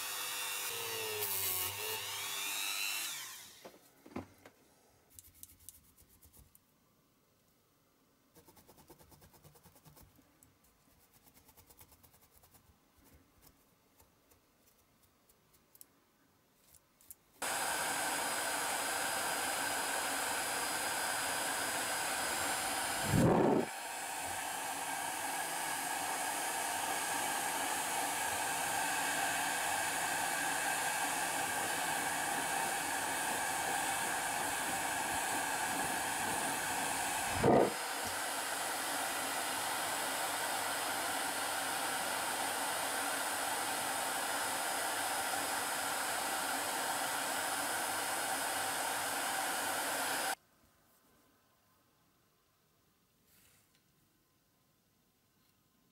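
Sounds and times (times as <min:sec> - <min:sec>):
heat gun blowing hiss: 0:00.0 - 0:03.8, 0:17.4 - 0:50.4.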